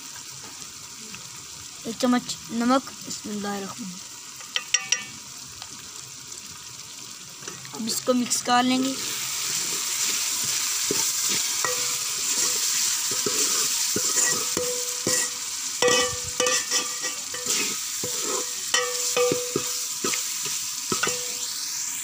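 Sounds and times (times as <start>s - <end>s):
food sizzling in a pot: 0.0s - 22.0s
spoon clinking against a pot: 4.5s - 5.1s, 11.6s - 12.5s, 14.0s - 19.9s, 20.9s - 21.4s
metal spoon scraping a pot: 10.9s - 21.4s.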